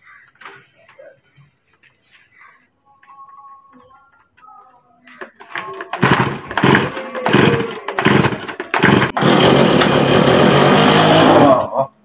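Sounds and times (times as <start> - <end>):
starter cord pulls: 5.2 - 11.6
chainsaw engine running: 5.5 - 11.8.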